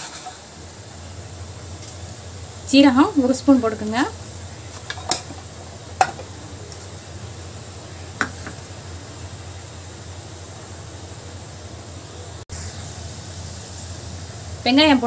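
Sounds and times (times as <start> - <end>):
seeds sizzling in hot oil: 0.0 - 15.0.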